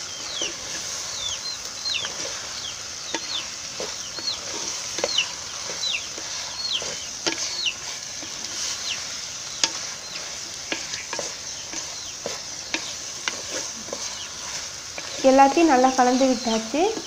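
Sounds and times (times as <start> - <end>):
food sizzling in a pot: 0.0 - 17.0
ladle scraping against pot: 10.6 - 15.2.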